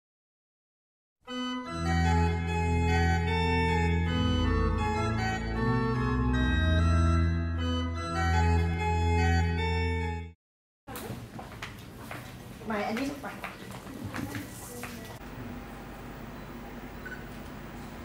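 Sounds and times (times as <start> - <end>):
organ playing slow held chords: 1.3 - 10.4.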